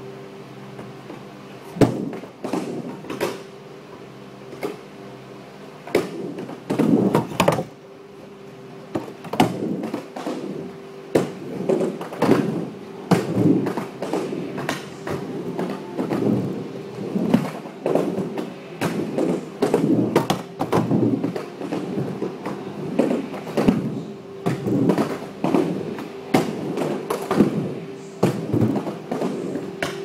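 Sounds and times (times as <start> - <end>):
steady low hum: 0.0 - 30.0
skateboard clacks and thuds: 5.9 - 7.7, 8.9 - 27.6, 28.2 - 30.0
skateboard wheels rolling: 8.9 - 30.0.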